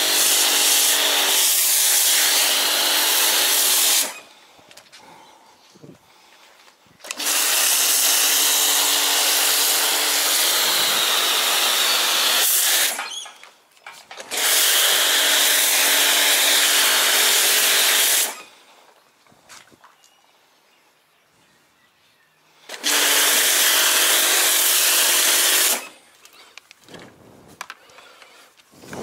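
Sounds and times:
pressure washer motor humming: 0:00.0 - 0:04.2, 0:07.1 - 0:13.0, 0:22.7 - 0:25.9.

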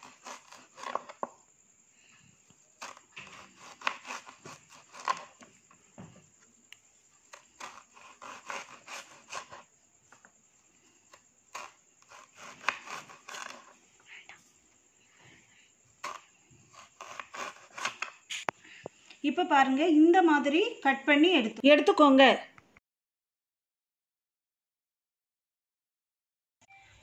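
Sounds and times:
knife slicing banana: 0:00.0 - 0:01.4, 0:02.7 - 0:05.6, 0:07.2 - 0:09.8, 0:11.1 - 0:13.8, 0:16.0 - 0:18.5.

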